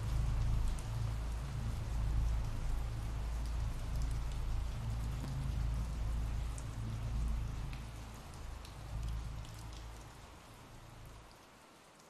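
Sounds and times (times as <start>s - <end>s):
steady rain falling: 0.0s - 12.0s
ticks of single raindrops: 0.0s - 12.0s.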